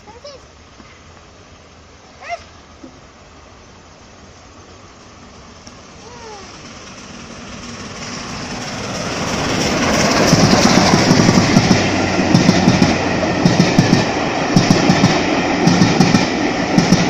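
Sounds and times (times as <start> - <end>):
steam train rumble: 0.0 - 17.0
wheels clicking on rail joints: 5.2 - 17.0.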